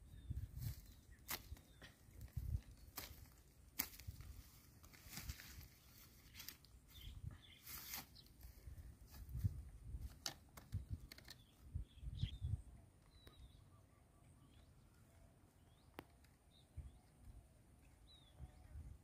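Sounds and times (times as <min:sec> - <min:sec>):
birds chirping faintly: 0:05.5 - 0:08.9, 0:10.6 - 0:19.0.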